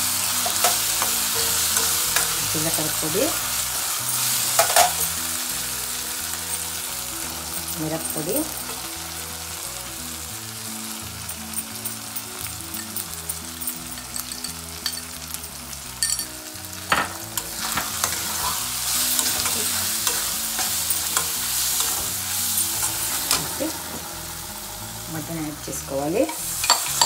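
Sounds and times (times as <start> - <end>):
onions sizzling in a pan: 0.0 - 27.0
metal spatula scraping a pan: 0.2 - 5.2, 17.4 - 24.5.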